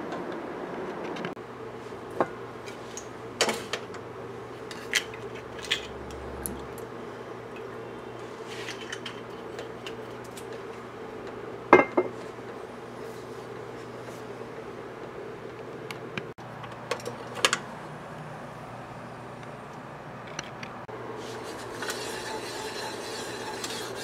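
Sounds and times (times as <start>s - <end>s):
low steady hum: 0.0s - 24.0s
utensils and cookware clinking: 8.4s - 10.7s, 21.4s - 24.0s.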